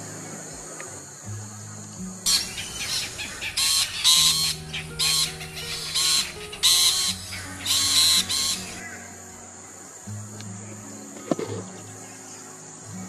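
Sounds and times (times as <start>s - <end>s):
background music of low notes: 0.0s - 13.0s
bird giving harsh rasping calls: 2.3s - 9.0s.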